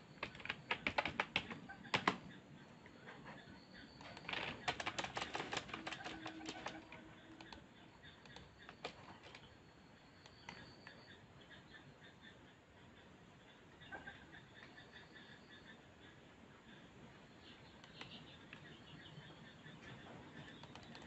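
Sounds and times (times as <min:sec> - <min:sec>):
keyboard and mouse clicking: 0:00.2 - 0:02.3, 0:04.0 - 0:07.6, 0:08.2 - 0:09.5, 0:20.5 - 0:21.0.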